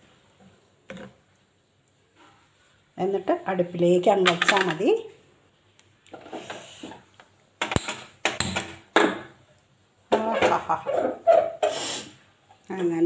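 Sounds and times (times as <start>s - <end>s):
pot scraping on burner grate: 6.2s - 7.0s.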